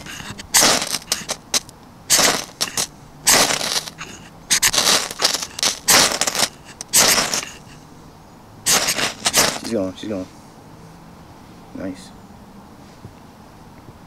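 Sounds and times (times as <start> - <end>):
knife scraping ferro rod: 0.0 - 7.8, 8.7 - 9.7.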